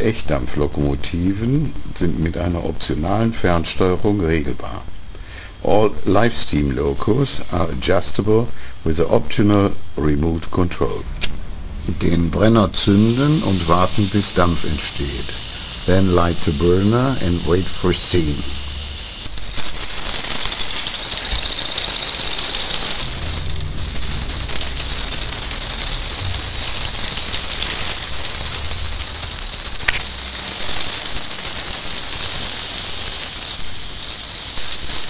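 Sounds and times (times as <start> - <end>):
model locomotive running: 0.0 - 35.0
steam hissing: 0.0 - 35.0
low rumble: 10.8 - 13.4, 21.0 - 30.9.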